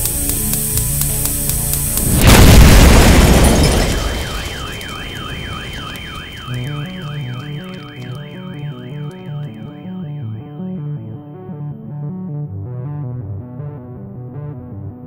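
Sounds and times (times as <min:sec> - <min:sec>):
loud noise hit: 0:02.0 - 0:09.6
steady high tone: 0:03.4 - 0:11.1
alarm-like warbling tone: 0:03.5 - 0:10.8.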